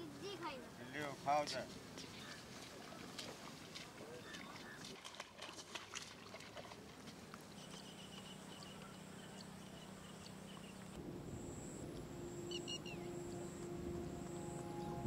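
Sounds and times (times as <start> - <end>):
high-pitched hum: 10.9 - 15.0
low held music note: 11.0 - 15.0
bird chirping: 11.7 - 15.0.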